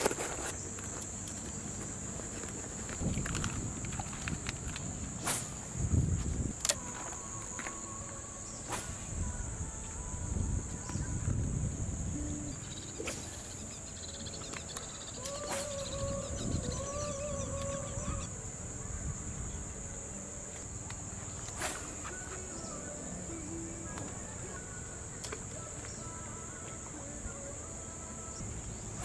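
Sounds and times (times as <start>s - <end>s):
wind rumbling on microphone: 0.0s - 22.8s
insects droning: 0.0s - 29.0s
faint wavering call: 12.0s - 20.3s, 21.6s - 29.0s.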